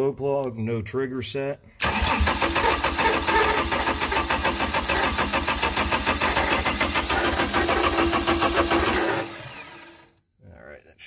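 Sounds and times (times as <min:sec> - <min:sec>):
diesel engine cranking on starter: 0:01.8 - 0:10.1.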